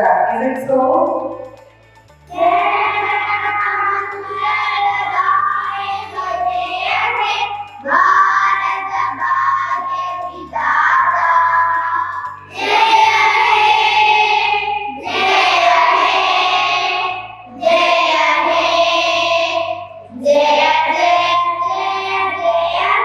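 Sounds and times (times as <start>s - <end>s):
children singing in unison: 2.3s - 23.0s.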